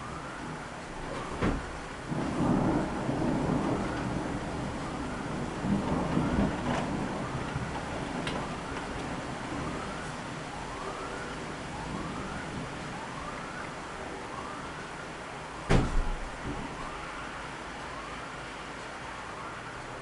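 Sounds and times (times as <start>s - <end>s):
emergency siren wailing: 0.0s - 20.0s
loud sharp bang: 15.7s - 16.2s.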